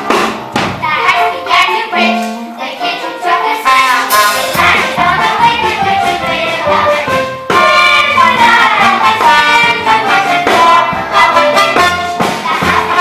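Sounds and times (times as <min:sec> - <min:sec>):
pit band playing: 0:00.0 - 0:13.0
cast singing: 0:01.0 - 0:13.0
trumpet: 0:03.6 - 0:05.4, 0:06.6 - 0:13.0
cymbal crash: 0:04.1 - 0:04.7.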